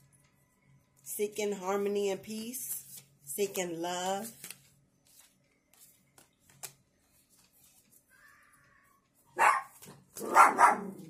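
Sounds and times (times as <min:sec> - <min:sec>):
dog barking aggressively: 0:09.4 - 0:11.0.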